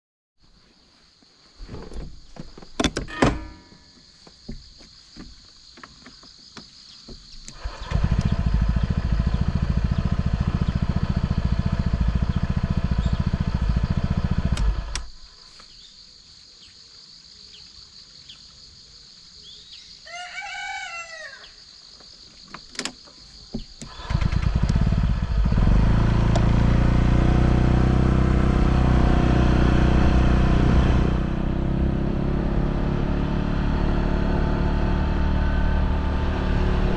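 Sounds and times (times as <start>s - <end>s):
scooter engine running: 7.5s - 15.1s, 23.8s - 36.9s
rooster crowing: 20.0s - 21.6s.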